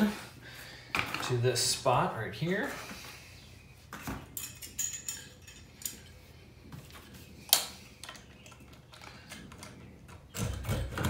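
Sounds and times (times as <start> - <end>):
metallic clinks and knocks: 4.0 - 6.2.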